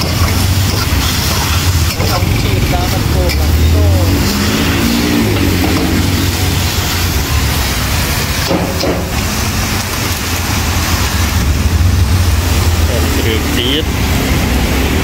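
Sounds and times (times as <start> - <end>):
steel spatula stirring: 0.0 - 10.4
beef sizzling in a wok: 0.0 - 15.0
steady low roar: 0.0 - 15.0.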